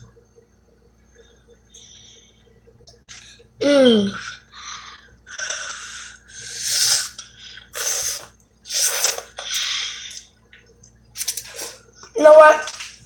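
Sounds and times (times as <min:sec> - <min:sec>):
child slurping noodles: 0:05.3 - 0:10.2.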